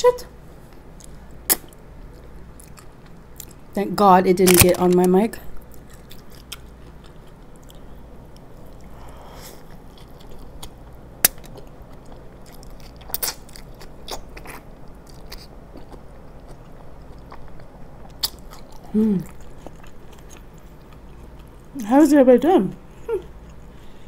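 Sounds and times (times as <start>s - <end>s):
steady low hum: 0.0s - 24.0s
biting and chewing: 5.6s - 9.0s, 9.6s - 21.8s.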